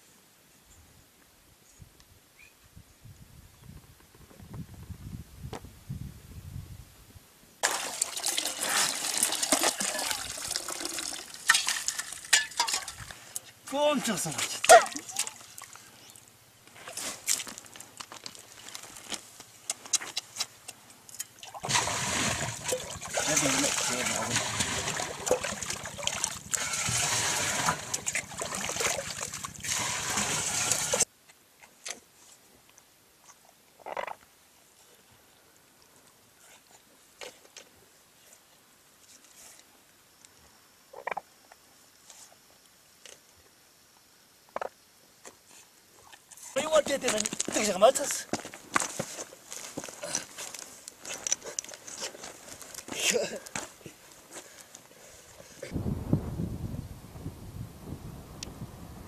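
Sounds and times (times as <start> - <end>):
water splashing and sloshing: 7.6 - 18.9, 21.1 - 31.1.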